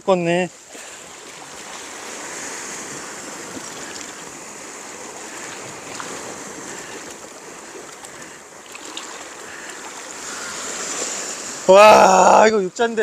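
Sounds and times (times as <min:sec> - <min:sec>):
sea water washing on rocks: 0:00.5 - 0:11.8.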